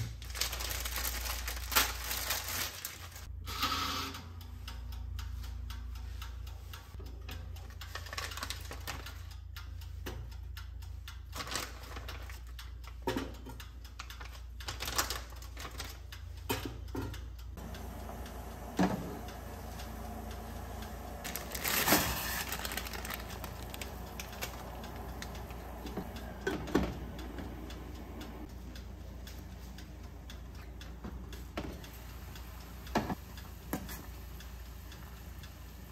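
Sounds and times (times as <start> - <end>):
steady low hum: 17.3 - 35.9.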